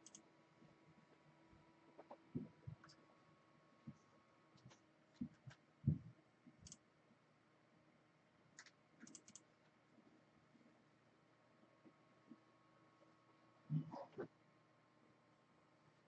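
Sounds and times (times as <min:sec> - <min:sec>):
faint clicks: 0:00.0 - 0:00.2, 0:08.6 - 0:09.8.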